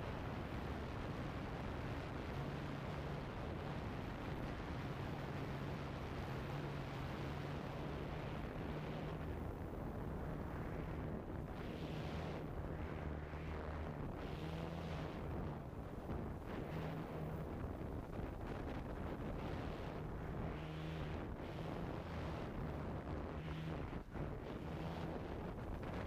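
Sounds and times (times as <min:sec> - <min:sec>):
wind rushing over microphone: 0:00.0 - 0:26.0.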